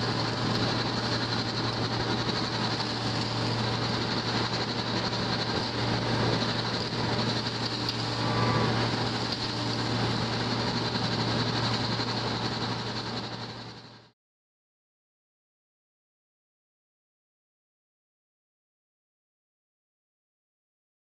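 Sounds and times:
bale spreader rotor hissing: 0.0s - 14.0s
loader engine humming: 0.0s - 14.1s.

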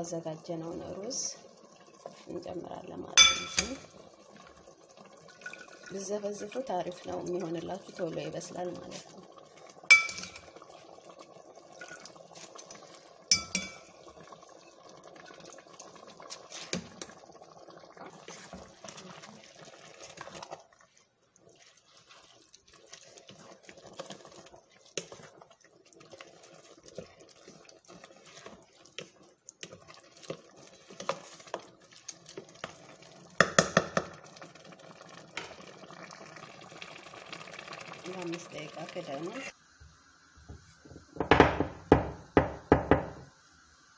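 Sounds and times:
spoon clinking against metal pot: 3.2s - 3.9s, 9.9s - 10.5s, 13.3s - 13.9s
spoon stirring rice in pot: 6.4s - 11.2s, 11.8s - 14.3s, 16.0s - 17.2s, 18.0s - 35.7s.

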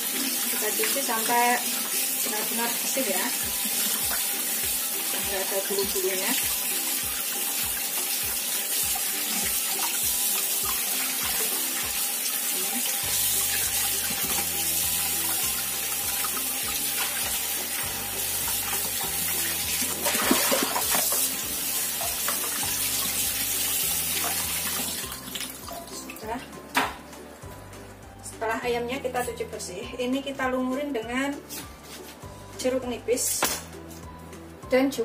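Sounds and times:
tap water running: 0.0s - 27.6s
water splashing into glass bowl: 19.8s - 21.4s.

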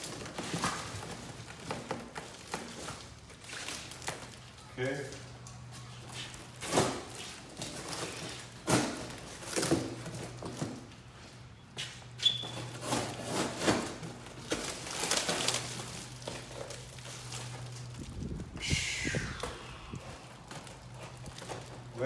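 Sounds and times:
plastic wrapping crinkling: 12.7s - 18.4s.

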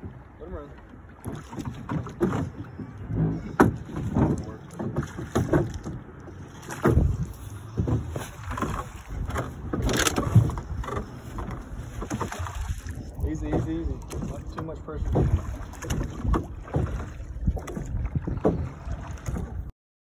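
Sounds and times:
water sloshing against boat: 0.0s - 19.7s.

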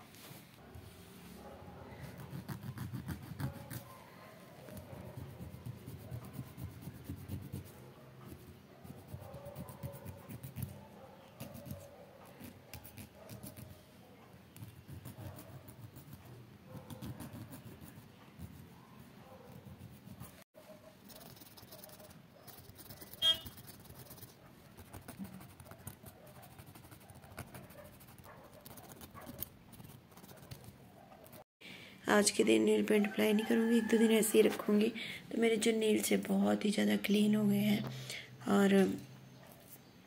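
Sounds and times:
nail file scraping: 2.0s - 4.0s, 4.7s - 13.8s, 14.5s - 18.7s, 21.0s - 31.4s.

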